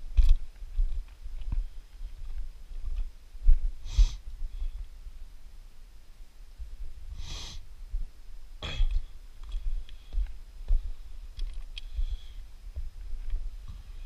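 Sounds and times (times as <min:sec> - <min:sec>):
breath-like rush of air: 0:03.8 - 0:04.2, 0:07.1 - 0:07.7.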